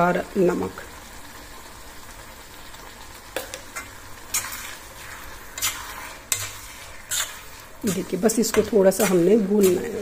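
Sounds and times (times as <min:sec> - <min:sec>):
vegetables sizzling in pan: 0:00.0 - 0:10.0
metal spoon scraping pan: 0:03.7 - 0:10.0.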